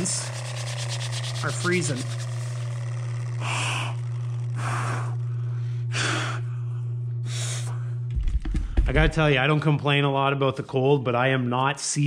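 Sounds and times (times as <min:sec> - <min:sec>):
person blowing into hands: 0:00.0 - 0:06.5
low electrical hum: 0:00.0 - 0:12.0.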